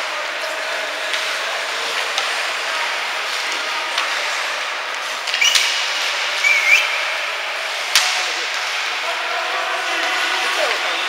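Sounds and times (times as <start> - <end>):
hockey sticks and puck knocking: 0.2 - 9.0.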